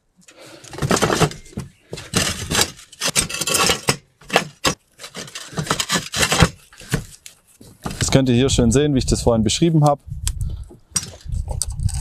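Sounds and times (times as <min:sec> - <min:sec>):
roof tiles scraping together: 0:00.4 - 0:08.2.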